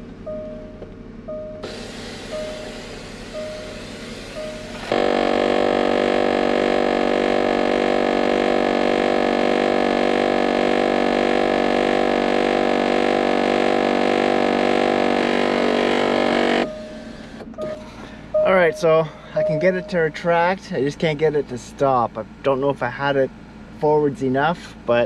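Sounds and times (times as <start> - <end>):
electric motor buzzing drone: 1.6 - 17.4.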